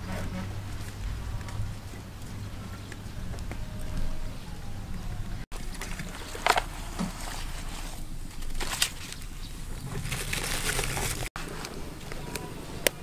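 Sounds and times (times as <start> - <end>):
hands handling raw meat in basin: 5.5 - 11.3.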